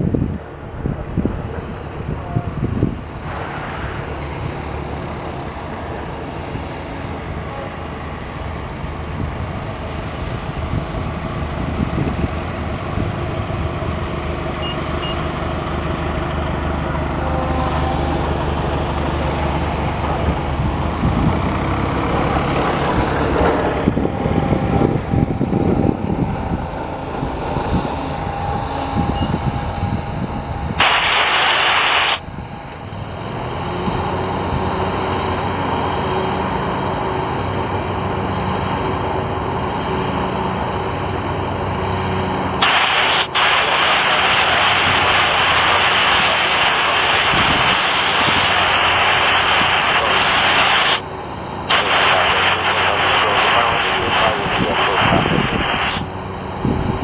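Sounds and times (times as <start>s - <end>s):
short hissing burst: 30.8s - 32.2s, 42.6s - 51.0s, 51.7s - 56.1s
light aircraft propeller engine: 32.2s - 57.0s.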